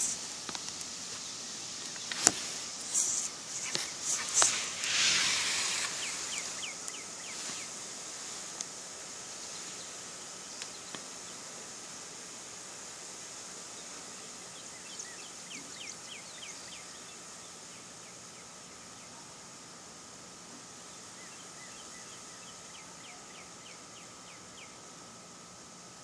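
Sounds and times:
steady hiss: 0:00.0 - 0:26.0
bird chirping: 0:01.1 - 0:07.8.

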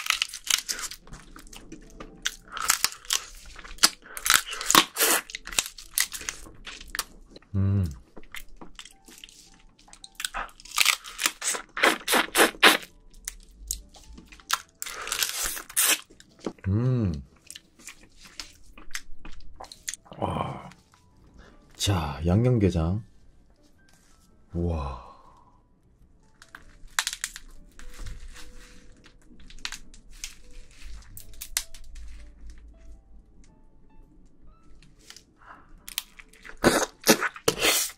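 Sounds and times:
shell crunching: 0:00.0 - 0:07.4, 0:08.2 - 0:16.6, 0:26.3 - 0:32.0, 0:35.8 - 0:37.9
wet sucking and slurping: 0:11.4 - 0:12.9, 0:36.6 - 0:37.9.

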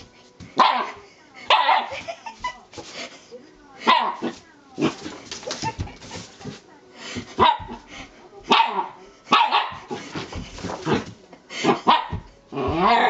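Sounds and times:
dog barking sharply: 0:00.6 - 0:01.9, 0:08.5 - 0:09.9.

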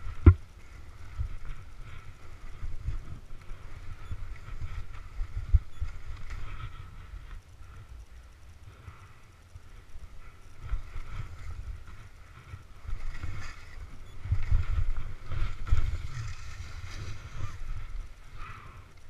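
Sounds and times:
wind buffeting microphone: 0:10.6 - 0:18.2
skis scraping through snow: 0:12.9 - 0:17.9.

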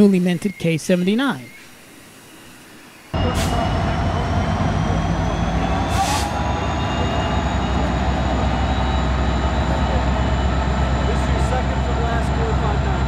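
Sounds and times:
diesel locomotive engine drone: 0:03.2 - 0:13.0
high whine: 0:03.2 - 0:13.0.

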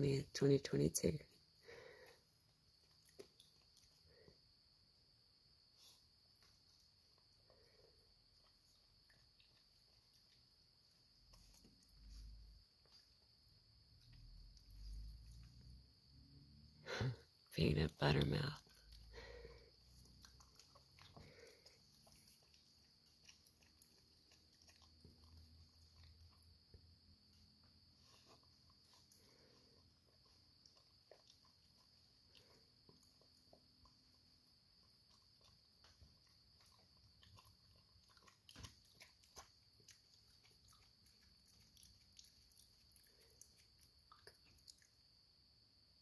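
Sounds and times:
animal chewing and smacking: 0:18.1 - 0:45.1.

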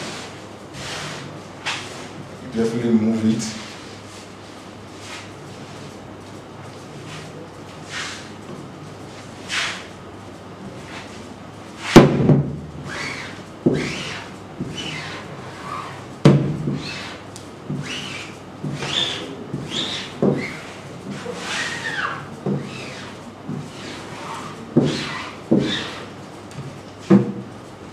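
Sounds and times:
squeegee scraping across mesh: 0:17.8 - 0:26.1.

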